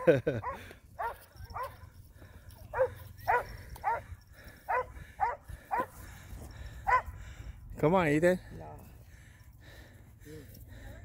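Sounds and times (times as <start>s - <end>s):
dog barking: 0.4s - 1.8s, 2.7s - 4.0s, 4.7s - 6.0s, 6.9s - 7.1s.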